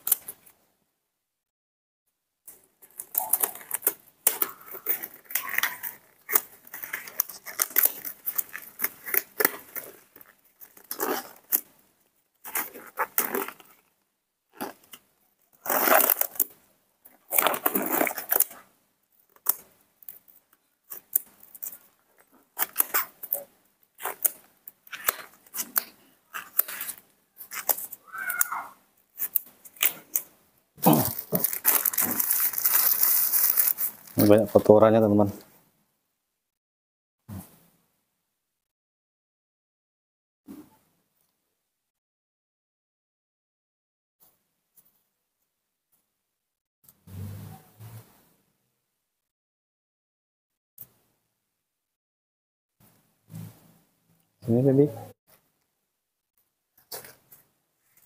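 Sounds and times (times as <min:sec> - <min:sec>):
disposable gloves crinkling: 0:02.5 - 0:14.0, 0:15.6 - 0:18.6, 0:19.2 - 0:28.5, 0:29.1 - 0:34.7.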